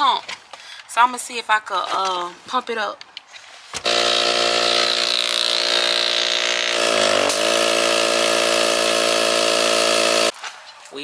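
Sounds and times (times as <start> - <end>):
electric air pump running: 3.8 - 10.3.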